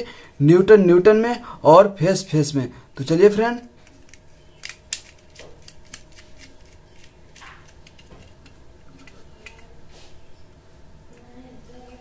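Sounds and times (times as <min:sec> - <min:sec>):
sharp clicks: 0:03.8 - 0:08.1
plastic socket being handled: 0:03.8 - 0:09.7
screwdriver clicks and taps: 0:03.8 - 0:09.7.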